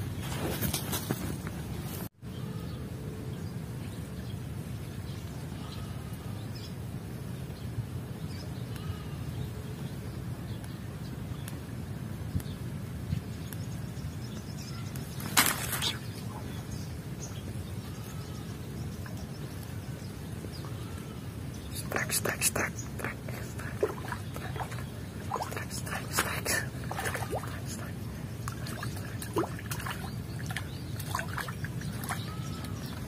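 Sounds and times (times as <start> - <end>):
bird chirps: 28.6 - 33.0.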